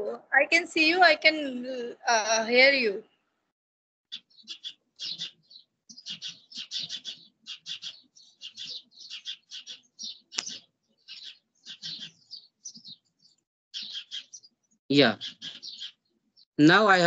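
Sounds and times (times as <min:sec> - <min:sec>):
small birds chirping: 0:04.1 - 0:17.0.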